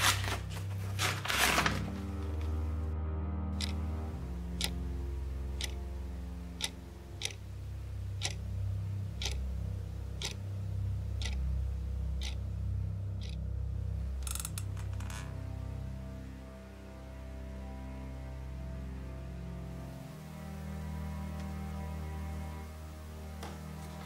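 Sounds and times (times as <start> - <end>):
low sustained music score: 0.0 - 24.0
wall clock ticking: 3.6 - 13.5, 14.2 - 14.8.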